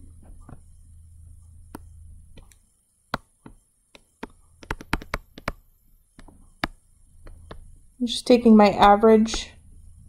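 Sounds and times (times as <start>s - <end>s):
faint low hum: 0.0s - 10.0s
stylus tapping on tablet screen: 1.7s - 7.7s.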